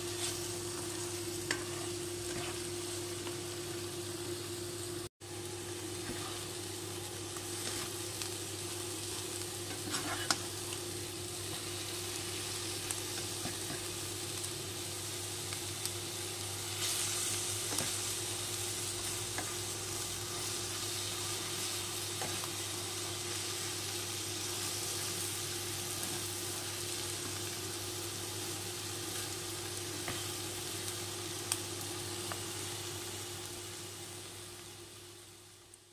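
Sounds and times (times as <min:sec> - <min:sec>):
food sizzling in a frying pan: 0:00.0 - 0:35.9
spatula scraping and tapping: 0:00.2 - 0:02.7, 0:09.7 - 0:10.4.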